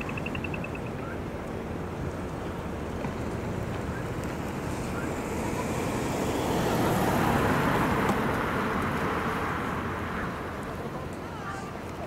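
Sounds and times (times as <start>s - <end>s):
minivan driving past: 2.2s - 11.1s.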